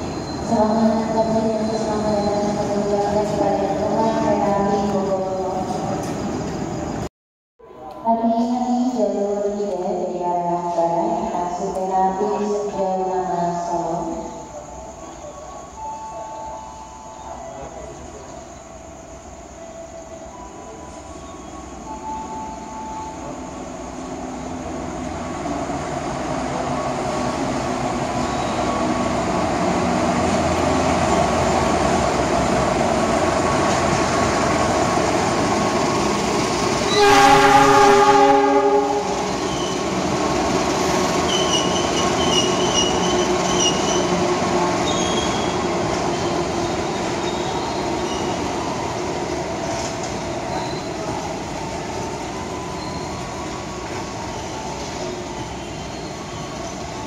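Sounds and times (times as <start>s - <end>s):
faint high squeals: 0.0s - 2.6s, 41.2s - 44.1s, 44.8s - 49.0s, 49.8s - 57.0s
train wheels on rails: 0.0s - 7.1s, 8.7s - 57.0s
diesel locomotive engine: 0.0s - 57.0s
train horn blast: 36.9s - 39.3s.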